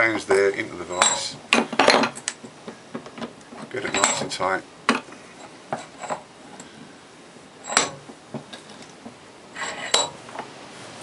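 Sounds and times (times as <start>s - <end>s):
metallic clinks and knocks: 1.0s - 2.3s, 2.9s - 6.3s, 7.6s - 9.0s, 9.6s - 10.4s.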